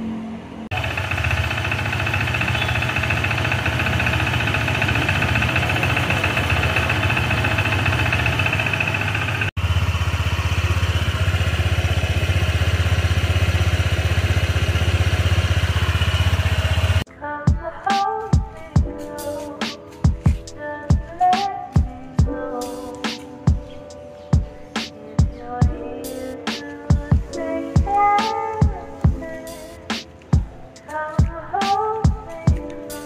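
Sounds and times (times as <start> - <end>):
scooter engine idling with rattle: 0.7 - 17.1.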